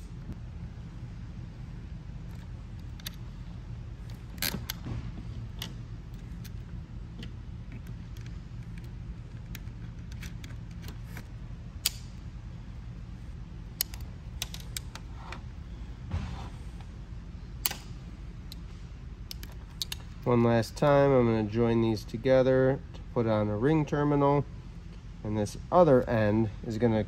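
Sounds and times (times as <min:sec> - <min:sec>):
steady low hum: 0:00.0 - 0:27.0
light clicks of metal terminals: 0:17.6 - 0:21.0.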